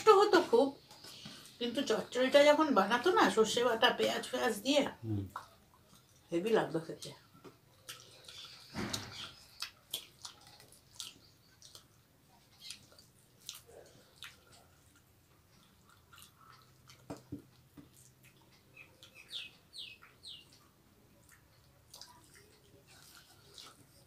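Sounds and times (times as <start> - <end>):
chewing and lip smacks: 5.3 - 6.3, 7.5 - 24.0.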